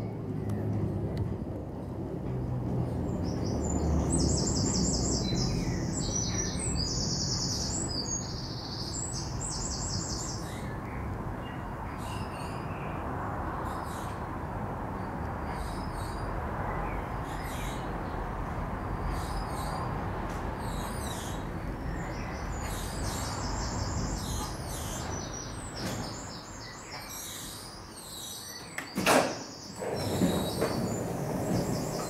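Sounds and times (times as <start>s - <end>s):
funicular car rumbling on rails: 0.0s - 12.2s, 29.6s - 32.0s.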